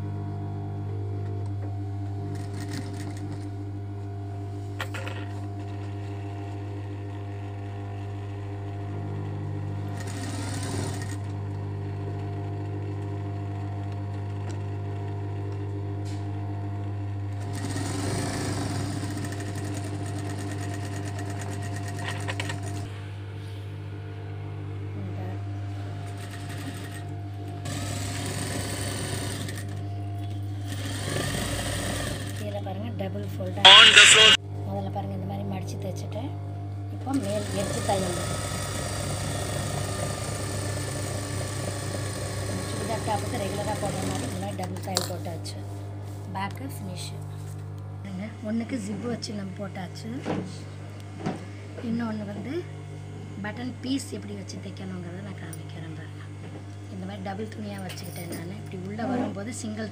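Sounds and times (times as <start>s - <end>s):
sewing machine stitching: 9.9s - 11.3s, 17.4s - 22.9s, 27.6s - 29.8s, 30.7s - 32.4s, 37.1s - 44.8s
steady low hum: 43.1s - 59.9s.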